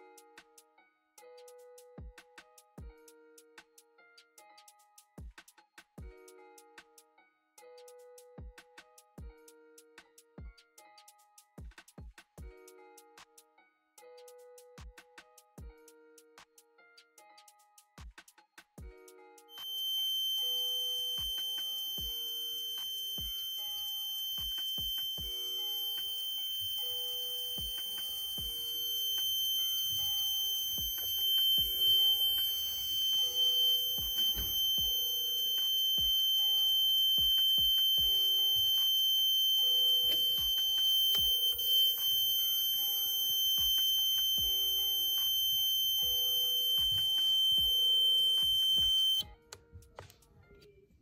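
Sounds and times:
background music with steady beat: 0:00.0 - 0:51.0
high-pitched alarm buzzer: 0:19.6 - 0:49.2.

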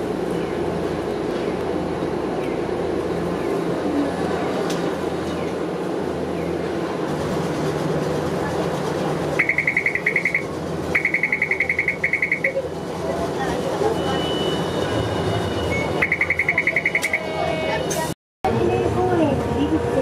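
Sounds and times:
tram rumbling: 0:00.0 - 0:20.0
electric warning bell trilling: 0:09.4 - 0:12.6.

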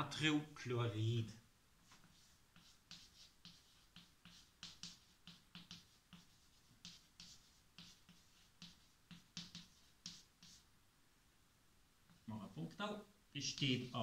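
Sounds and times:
chalk scratching on chalkboard: 0:01.8 - 0:10.7, 0:13.4 - 0:14.0
chalk knocking against board: 0:01.9 - 0:10.6.

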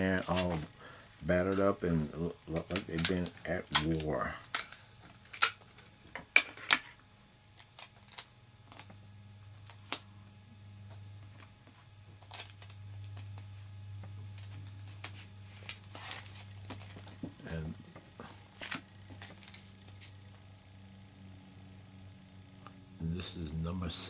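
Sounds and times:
plastic and card crinkling: 0:00.0 - 0:00.7, 0:02.5 - 0:05.9, 0:07.5 - 0:09.0, 0:11.3 - 0:13.6, 0:14.3 - 0:20.2
low steady hum: 0:00.0 - 0:24.0.

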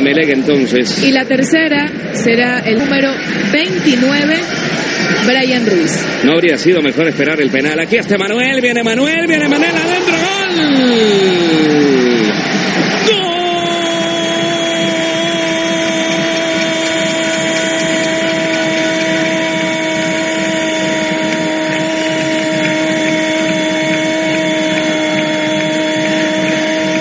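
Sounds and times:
crowd noise: 0:00.0 - 0:27.0
long steady horn note: 0:13.3 - 0:27.0.

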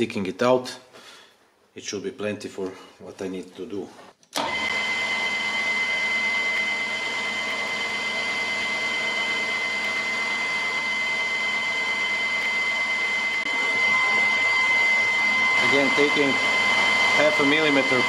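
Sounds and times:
metal lathe whining: 0:04.4 - 0:18.0.

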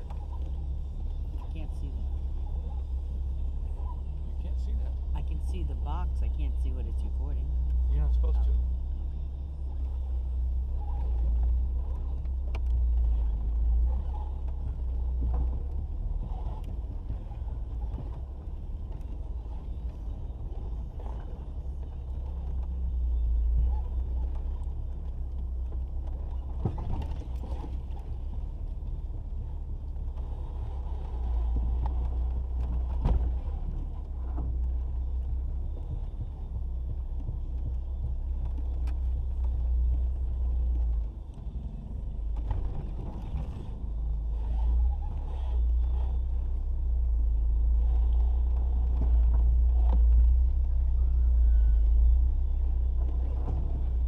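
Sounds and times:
engine and drivetrain rumble: 0:00.0 - 0:54.0
vehicle knocks and clunks: 0:11.0 - 0:51.0.

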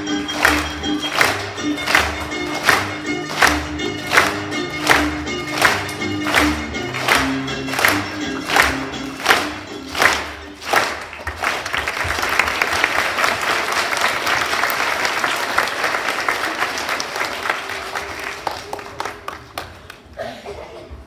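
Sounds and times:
dance music: 0:00.0 - 0:11.1
audience applauding: 0:00.0 - 0:20.2.

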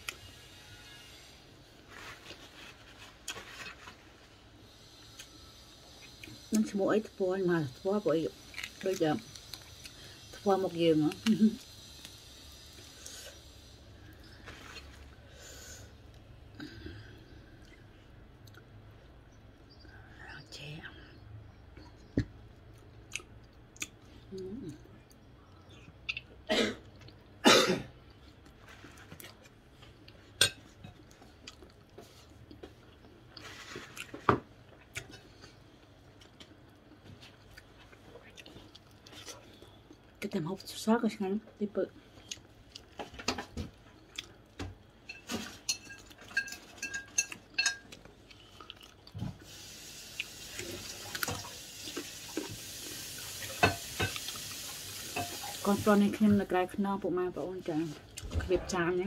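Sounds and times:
wet chewing clicks: 0:25.0 - 0:26.4
dishes and cutlery clinking: 0:45.0 - 0:48.0, 0:55.1 - 0:55.6
steady hiss: 0:49.4 - 0:56.2.

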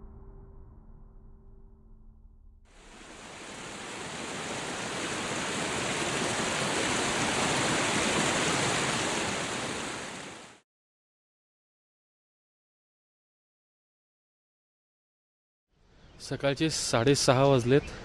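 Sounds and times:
river rapids rushing: 0:02.8 - 0:10.6.

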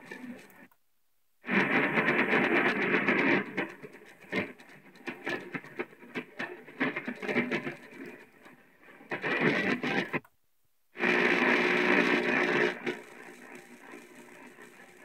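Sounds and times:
radio static: 0:00.0 - 0:00.7, 0:01.4 - 0:10.2, 0:11.0 - 0:15.0
radio station audio fragments: 0:01.5 - 0:10.2.

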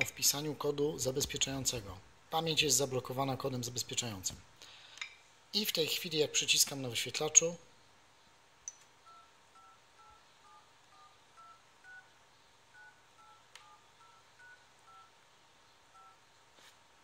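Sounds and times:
two-tone dialing beeps: 0:09.0 - 0:12.1, 0:12.8 - 0:15.1, 0:16.0 - 0:16.2.

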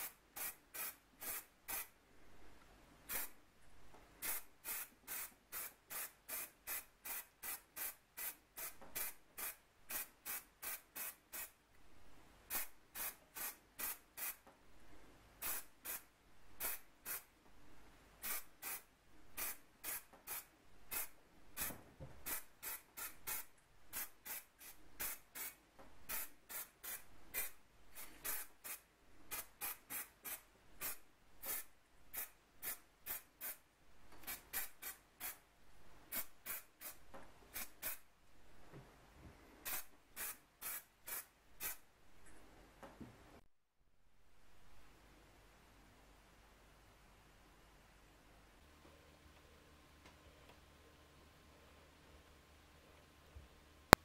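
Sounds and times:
spray paint can hissing: 0:00.0 - 0:01.9, 0:03.1 - 0:03.4, 0:04.2 - 0:11.6, 0:12.5 - 0:14.4, 0:15.4 - 0:16.0, 0:16.6 - 0:17.3, 0:18.2 - 0:33.6, 0:34.2 - 0:35.4, 0:36.1 - 0:38.0, 0:39.6 - 0:41.8.

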